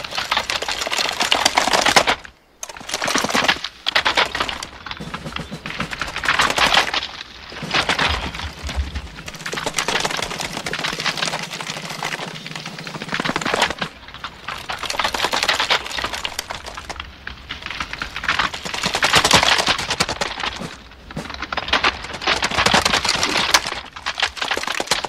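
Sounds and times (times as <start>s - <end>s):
rifles clicking and clacking: 0.8s - 17.0s.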